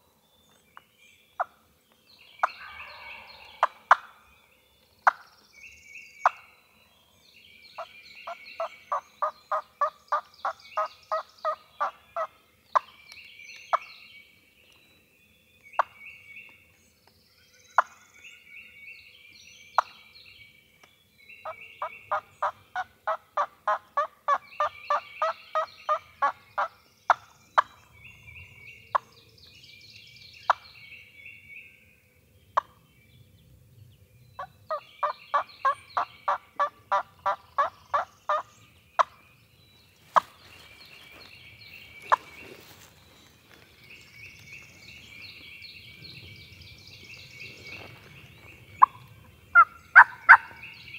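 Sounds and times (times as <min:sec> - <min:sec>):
songbirds trilling: 0:00.0 - 0:50.9
wild turkey yelping: 0:02.4 - 0:04.2, 0:10.8 - 0:12.3, 0:21.8 - 0:26.7, 0:34.7 - 0:38.4, 0:48.8 - 0:50.6.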